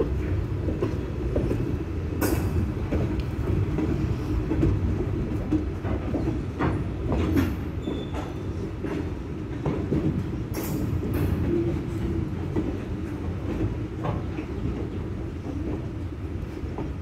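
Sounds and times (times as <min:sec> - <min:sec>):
train cars clanking: 0:00.0 - 0:17.0
train wheels rumbling on rails: 0:00.0 - 0:17.0.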